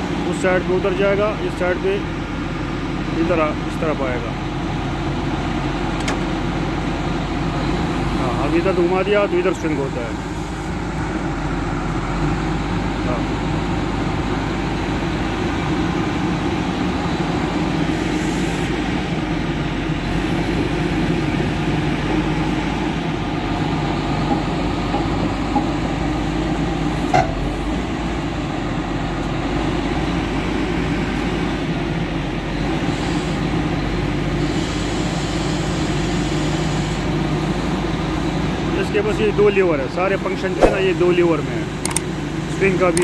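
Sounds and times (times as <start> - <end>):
diesel engine running: 0.0 - 43.0
sharp click: 40.6 - 40.8, 41.8 - 42.1.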